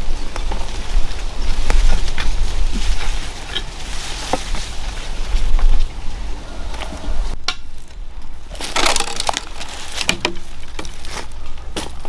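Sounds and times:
footsteps crunching dry leaves: 0.0 - 6.9, 8.5 - 12.0
twigs snapping: 7.4 - 12.0.

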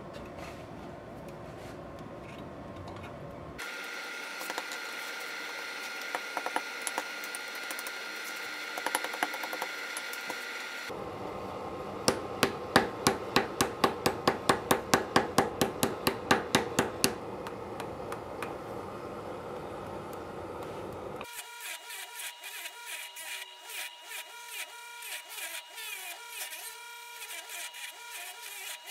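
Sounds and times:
gas forge humming: 0.0 - 21.4.

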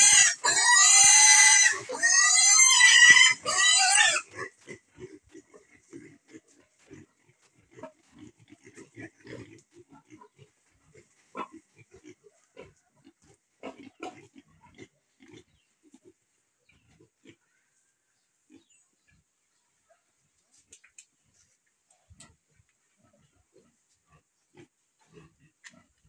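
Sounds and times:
piglets grunting: 0.0 - 15.6.

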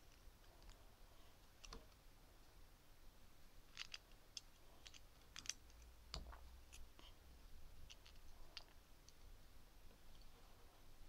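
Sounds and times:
plastic bricks clicking: 3.7 - 6.8.

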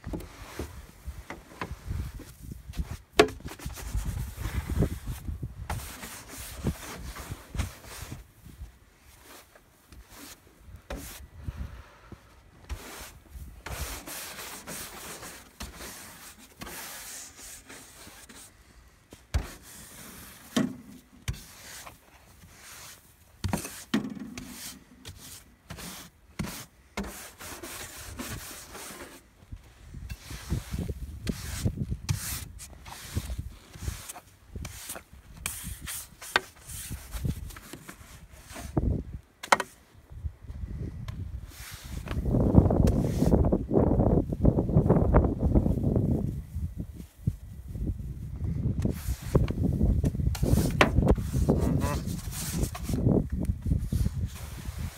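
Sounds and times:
snow brush scraping snow off car: 1.7 - 8.2, 12.7 - 18.5, 19.4 - 29.2, 30.1 - 38.8, 48.8 - 54.9.

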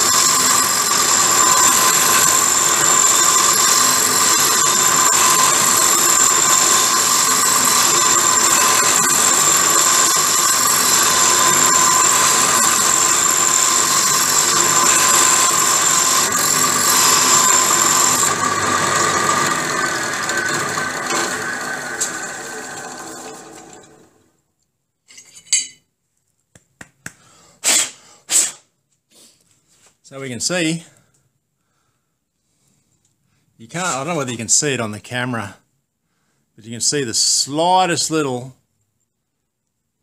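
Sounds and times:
drill press running: 0.0 - 24.2.

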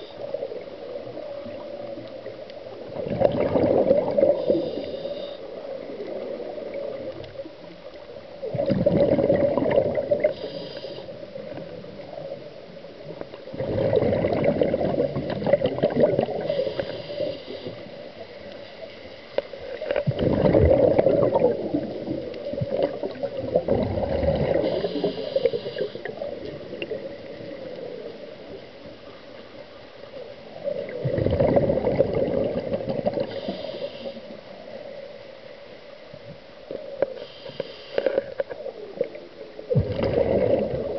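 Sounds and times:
exhaled bubbles burbling: 2.7 - 4.6, 8.4 - 10.4, 13.4 - 16.9, 19.6 - 28.3, 30.5 - 33.4, 38.2 - 40.9
regulator inhalation hiss: 4.3 - 5.5, 10.2 - 11.2, 16.4 - 18.0, 24.5 - 26.2, 33.2 - 34.4, 37.2 - 38.3.

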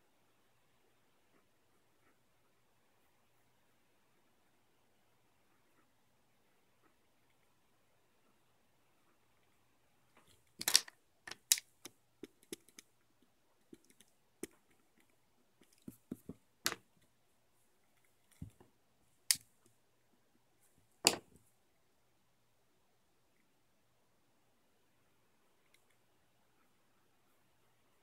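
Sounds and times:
pen scratching on paper: 1.1 - 4.6.

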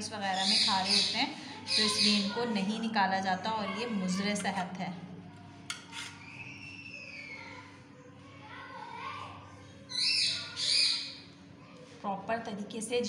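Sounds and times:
knife clicking on steel plate: 5.7 - 6.2
high bird calls: 6.2 - 7.6, 9.9 - 11.2
bird squawks: 9.9 - 11.2.

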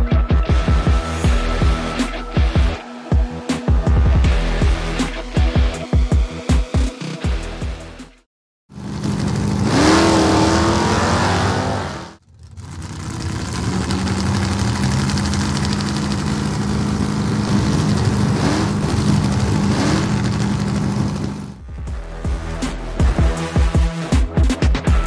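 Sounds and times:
car engine revving: 8.7 - 21.6.

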